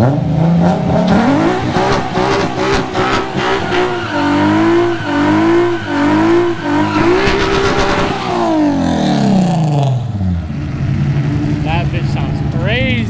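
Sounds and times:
car engine revving high: 0.0s - 13.0s
tyres screeching: 1.1s - 9.9s.

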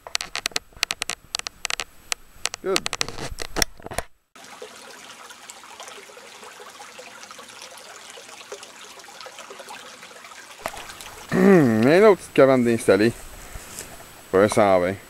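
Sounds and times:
small stream trickling: 4.4s - 15.0s.

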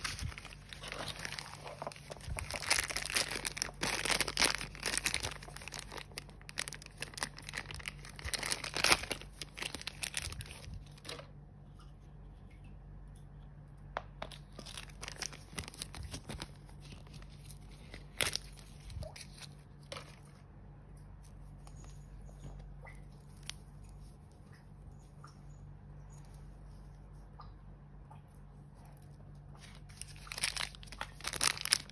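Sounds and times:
plastic wrapper crinkling: 0.0s - 11.3s, 14.2s - 20.4s, 29.6s - 31.9s.

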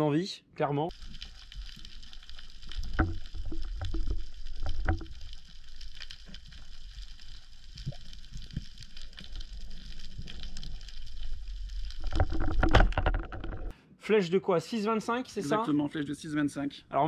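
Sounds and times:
underwater rumble of moving water: 0.9s - 13.7s
underwater knocks and clicks: 1.7s - 6.9s, 7.7s - 13.7s.

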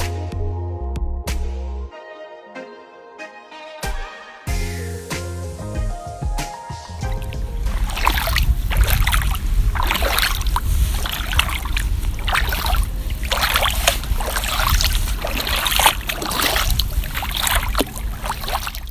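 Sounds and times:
low rumble: 7.0s - 18.9s
water splashing around wading feet: 7.0s - 18.9s.

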